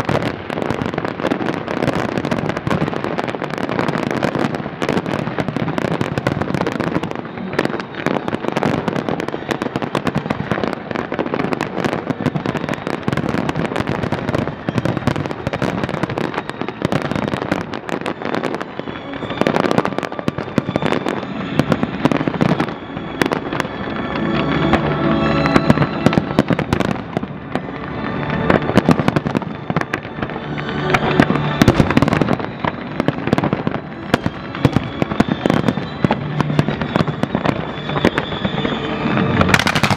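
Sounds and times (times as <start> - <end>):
fireworks bursting and crackling: 0.0 - 39.9
music playing: 0.0 - 39.9.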